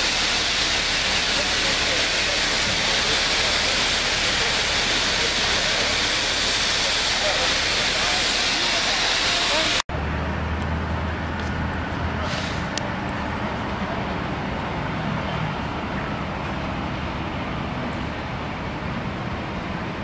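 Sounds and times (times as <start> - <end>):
street noise: 0.0 - 20.0
vehicle engines idling: 0.0 - 20.0
brief hiss: 12.2 - 12.8.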